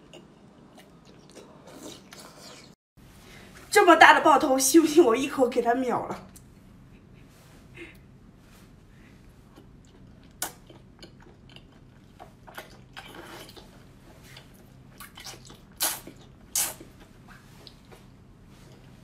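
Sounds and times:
mouth chewing with smacks: 0:09.4 - 0:19.0
person slurping: 0:15.0 - 0:17.0.

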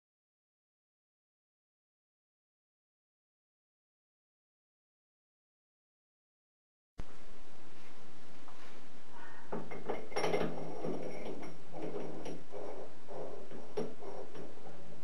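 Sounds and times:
metal clinking and rattling: 0:09.5 - 0:14.7.

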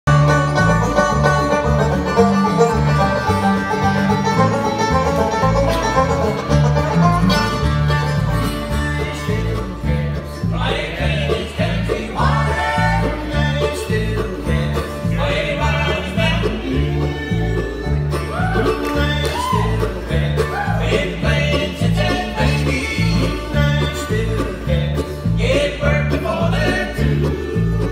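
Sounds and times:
bluegrass band playing: 0:00.0 - 0:27.9
upright bass thumping: 0:00.1 - 0:27.9
person singing: 0:08.8 - 0:27.9.

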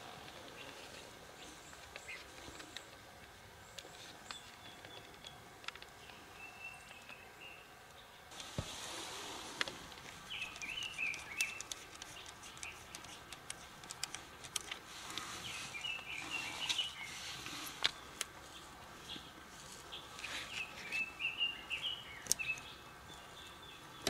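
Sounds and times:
birds chirping: 0:00.0 - 0:24.0
faint steady hiss: 0:00.0 - 0:24.0
small clicks: 0:09.6 - 0:15.3.

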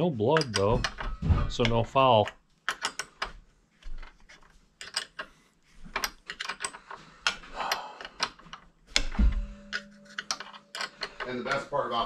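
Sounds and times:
wrenches clicking on metal bolt: 0:00.3 - 0:05.3, 0:05.9 - 0:11.7
heavy thump: 0:01.2 - 0:01.6, 0:09.1 - 0:09.6.

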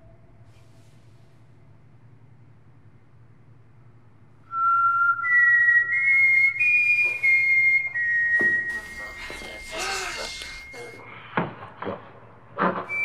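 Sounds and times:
low steady hum: 0:00.0 - 0:13.0
person whistling a slow tune: 0:04.5 - 0:11.0.

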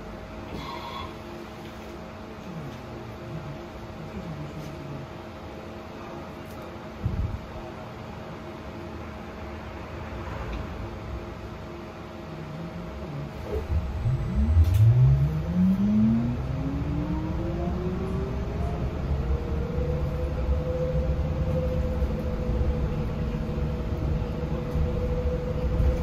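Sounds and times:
road rumble: 0:00.0 - 0:26.0.

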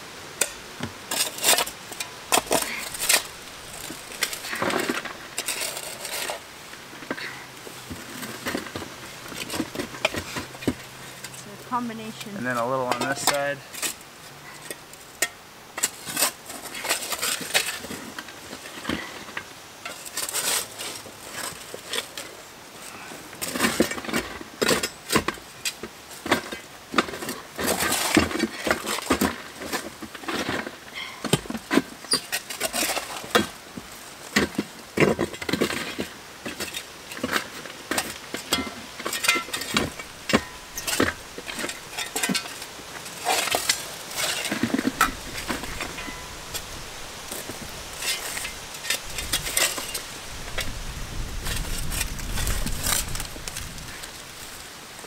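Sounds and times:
rocks and soil packed by hand: 0:00.0 - 0:55.0
knocks clinks and scraping: 0:07.0 - 0:22.3, 0:34.4 - 0:46.7.

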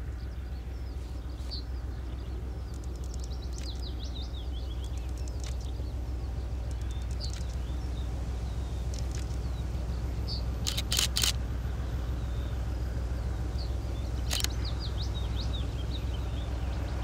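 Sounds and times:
birds chirping: 0:00.0 - 0:17.0
diesel locomotive engine throbbing: 0:00.0 - 0:17.0
sharp clicks: 0:02.6 - 0:03.9, 0:04.7 - 0:05.8, 0:06.6 - 0:07.7, 0:08.9 - 0:09.5, 0:10.6 - 0:11.4, 0:14.2 - 0:14.6.

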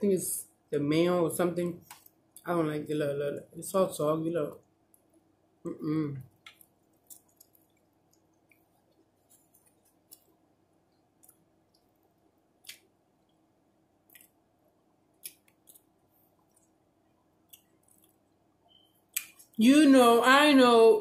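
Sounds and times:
wet chewing clicks and smacks: 0:06.3 - 0:10.4, 0:11.2 - 0:12.0, 0:12.6 - 0:13.4, 0:15.1 - 0:16.8, 0:17.4 - 0:18.3.

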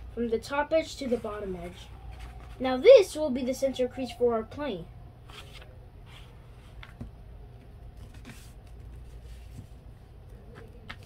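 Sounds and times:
steady low hum: 0:00.0 - 0:11.0
paper rustling and folding: 0:00.8 - 0:02.9, 0:08.0 - 0:09.9.

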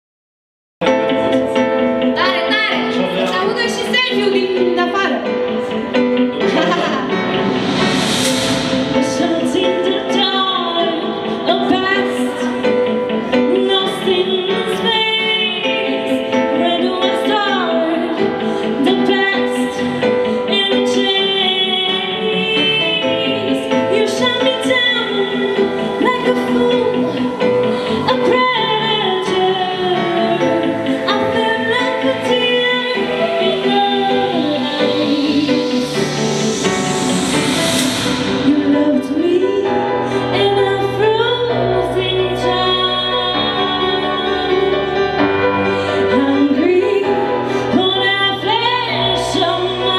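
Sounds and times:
instrumental accompaniment: 0:00.8 - 0:49.9
woman singing into a microphone: 0:09.0 - 0:36.1, 0:38.4 - 0:49.9.

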